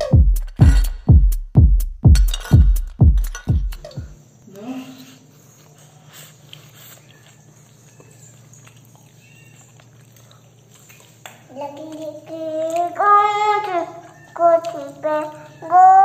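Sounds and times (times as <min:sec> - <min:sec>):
steady low hum: 0:00.0 - 0:04.5
faint clicks and rustles: 0:03.8 - 0:16.0.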